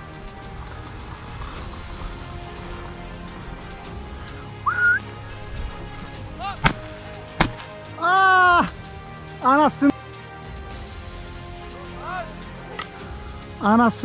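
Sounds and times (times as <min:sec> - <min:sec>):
short rising whistle: 0:04.6 - 0:05.1
shotgun shots: 0:06.6 - 0:07.8.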